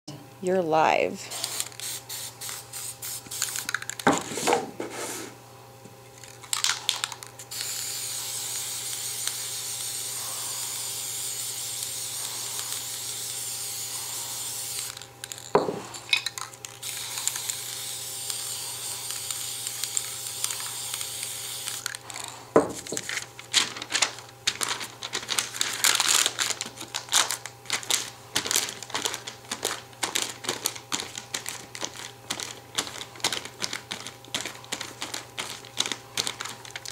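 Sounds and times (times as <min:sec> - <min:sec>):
aerosol spray can hissing: 0:01.3 - 0:03.8, 0:07.5 - 0:15.0, 0:16.8 - 0:21.9
paper crinkling: 0:19.1 - 0:36.9.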